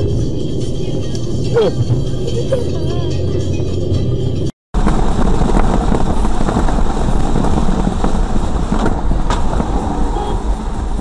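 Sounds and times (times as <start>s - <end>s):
car road and engine noise: 0.0s - 11.0s
heavy rain hitting a car: 4.8s - 11.0s.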